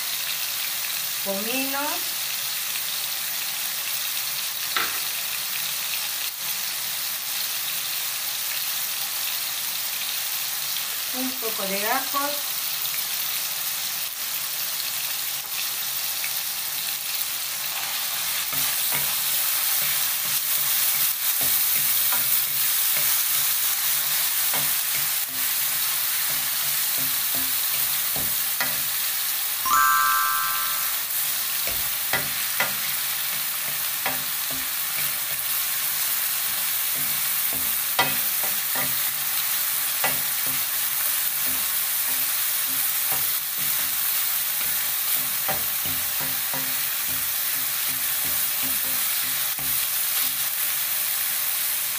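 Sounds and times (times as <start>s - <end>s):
meat sizzling in a frying pan: 0.0s - 29.6s, 30.9s - 51.9s
short high tone: 29.7s - 31.2s.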